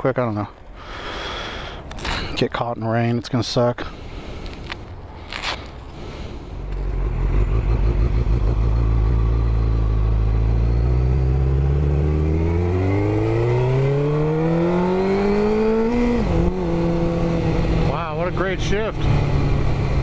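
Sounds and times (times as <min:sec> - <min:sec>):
motorcycle engine accelerating: 0:06.6 - 0:20.0.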